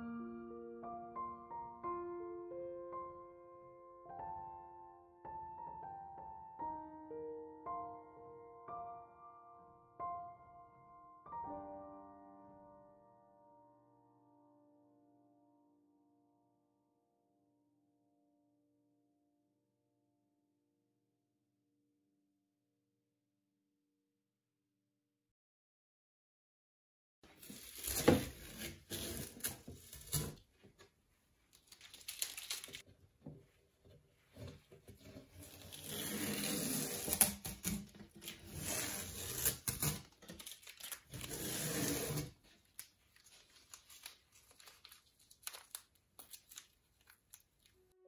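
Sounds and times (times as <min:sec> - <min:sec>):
masking tape ripping off paper: 0:27.4 - 0:30.4, 0:31.6 - 0:32.8, 0:35.4 - 0:47.6.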